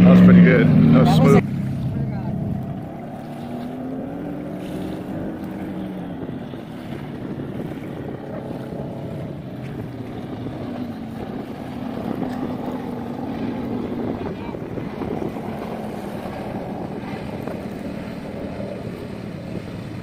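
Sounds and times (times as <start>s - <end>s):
boat engine drone: 0.0s - 20.0s
wind buffeting microphone: 0.0s - 20.0s.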